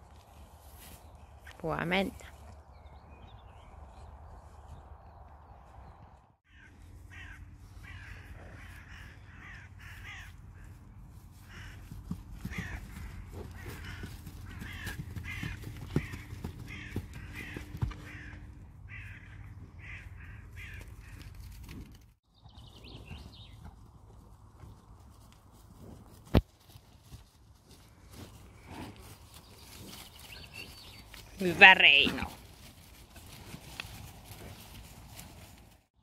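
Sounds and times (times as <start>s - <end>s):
crows cawing: 6.5s - 10.8s, 11.4s - 11.9s, 12.5s - 21.3s.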